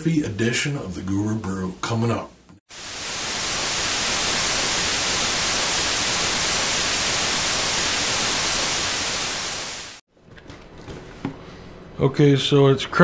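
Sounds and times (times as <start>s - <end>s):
television static hiss: 0.0s - 10.0s.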